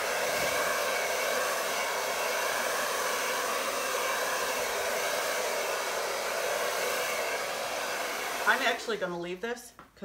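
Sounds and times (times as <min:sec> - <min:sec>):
hair dryer running: 0:00.0 - 0:09.4.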